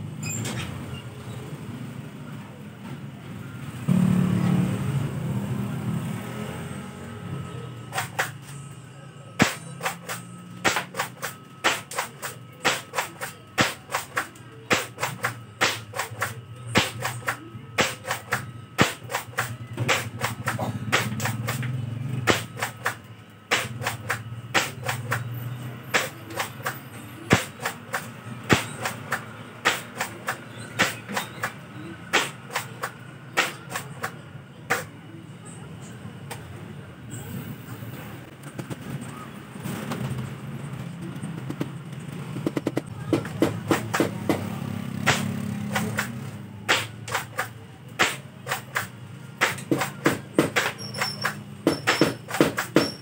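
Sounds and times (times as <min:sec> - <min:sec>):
toy shotgun pumping and firing: 0:09.4 - 0:21.6, 0:26.0 - 0:34.9, 0:45.0 - 0:53.0.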